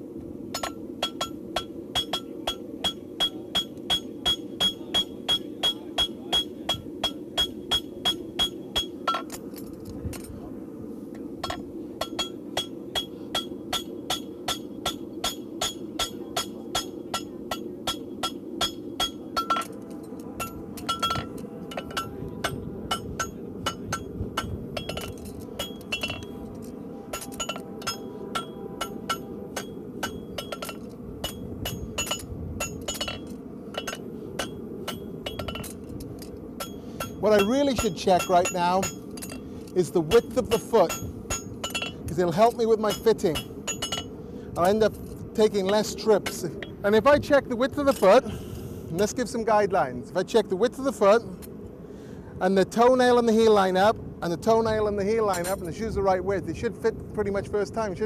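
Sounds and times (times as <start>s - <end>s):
low rushing noise: 0.0s - 58.0s
hammer striking horseshoe on anvil: 0.5s - 9.4s, 11.4s - 19.7s, 27.1s - 35.7s, 36.6s - 39.4s, 40.1s - 42.1s, 42.9s - 44.1s.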